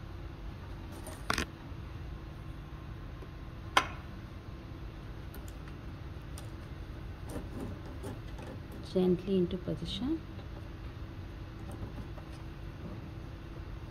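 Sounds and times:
low steady hum: 0.0s - 13.9s.

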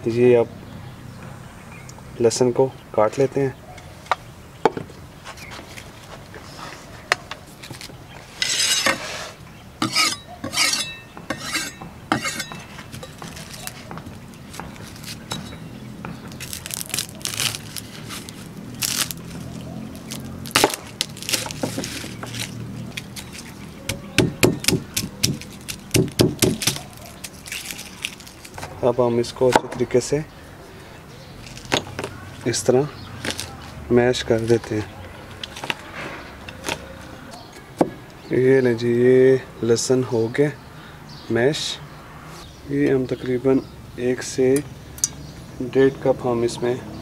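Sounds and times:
garlic skins crackling: 9.8s - 29.5s, 31.3s - 37.8s
knife chopping on board: 23.9s - 26.8s.

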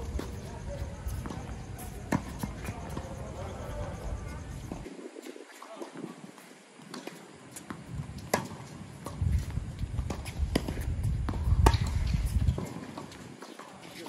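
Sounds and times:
ball bouncing on hardcourt: 7.6s - 13.2s
tennis ball struck by rackets: 10.0s - 13.1s.

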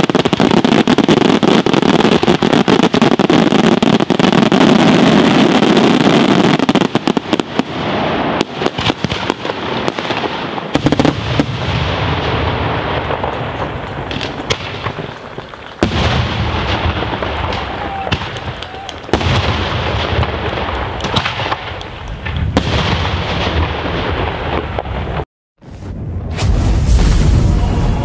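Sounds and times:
fireworks crackling: 0.0s - 28.0s
sharp fireworks pops: 0.0s - 28.0s
booming fireworks shell bursts: 15.8s - 28.0s.

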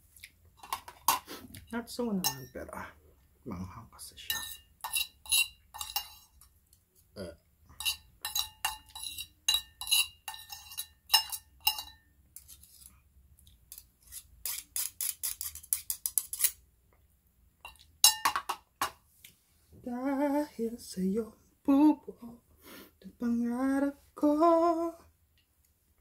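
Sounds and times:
fork and spoon clinking on dish: 4.3s - 6.5s, 7.8s - 12.5s, 17.6s - 18.6s.

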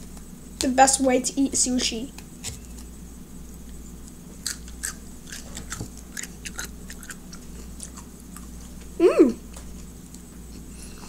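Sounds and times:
steady low hum: 0.0s - 11.0s
person chewing: 4.0s - 9.0s.

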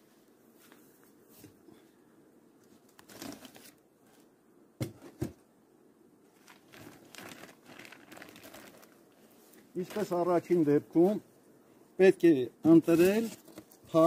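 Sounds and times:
plastic film crinkling: 6.3s - 10.2s.

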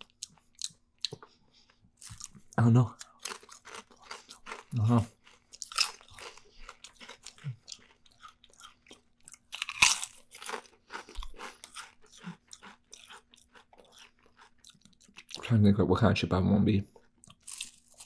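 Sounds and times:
potato chips crunching: 3.0s - 15.4s, 17.3s - 18.0s.

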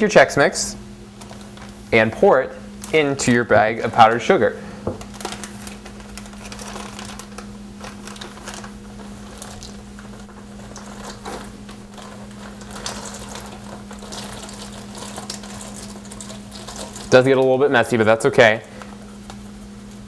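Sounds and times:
steady low hum: 0.0s - 20.0s
plastic bag crinkling: 1.1s - 19.4s.

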